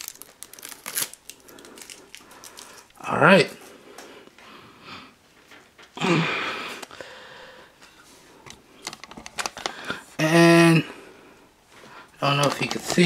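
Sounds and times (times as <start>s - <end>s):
rustling packaging: 0.0s - 3.2s, 12.2s - 13.0s.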